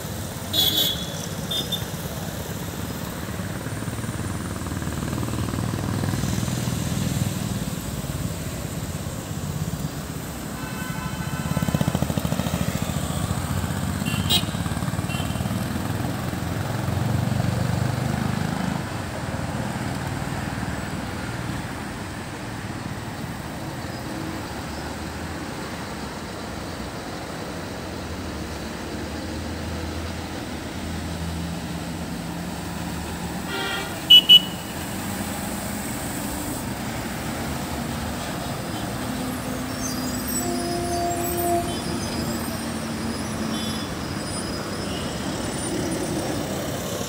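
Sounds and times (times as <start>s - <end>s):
passing traffic: 0.0s - 47.0s
horn toots: 33.4s - 34.8s, 40.1s - 42.4s.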